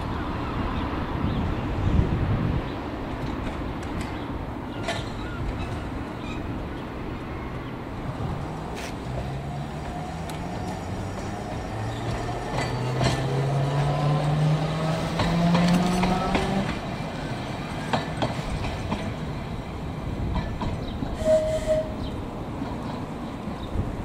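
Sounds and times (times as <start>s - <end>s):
wheels clicking on track: 8.6s - 24.0s.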